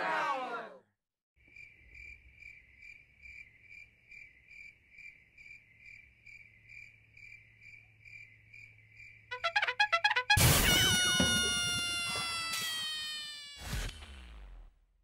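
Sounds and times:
crickets chirping: 0:01.4 - 0:09.4.

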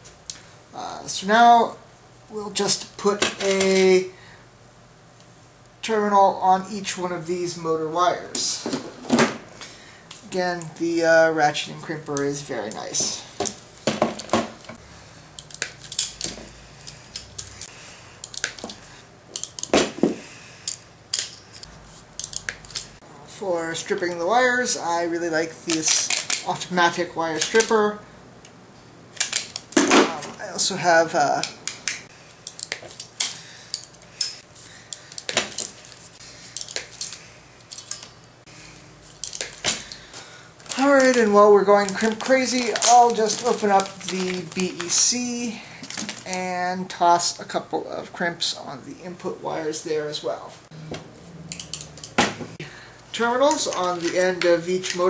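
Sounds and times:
crimping tool clicking: 0:15.4 - 0:19.7
ratcheting crimping tool clicking: 0:15.4 - 0:19.7, 0:20.6 - 0:22.9, 0:31.3 - 0:35.7, 0:36.6 - 0:38.1
metal tools clinking: 0:39.1 - 0:40.0, 0:51.5 - 0:52.2.

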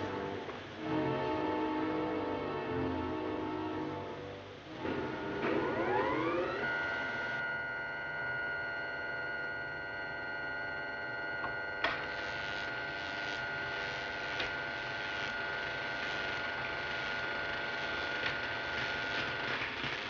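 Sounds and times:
generator humming with high whine: 0:00.0 - 0:20.0
electric arcing crackle: 0:11.9 - 0:20.0.

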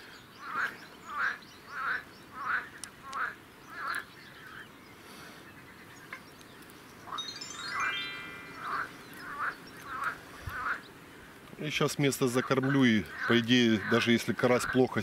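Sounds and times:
duck quacking: 0:08.7 - 0:10.8, 0:13.1 - 0:14.8.

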